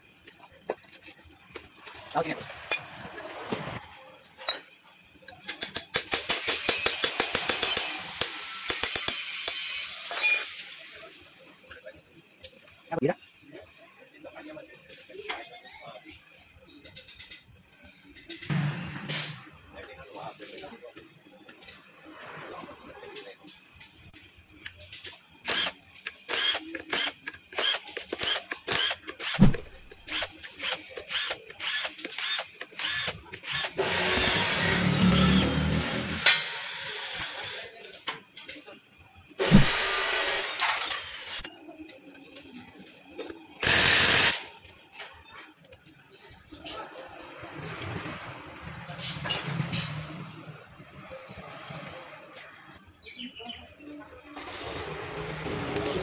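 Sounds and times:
hand tool clicking on steel: 5.5 - 9.6
cordless drill whirring: 25.5 - 36.2, 43.6 - 44.4.

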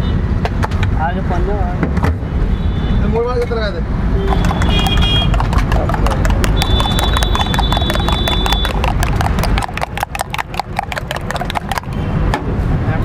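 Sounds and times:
spoon clinking in steel tumbler: 4.3 - 12.0.

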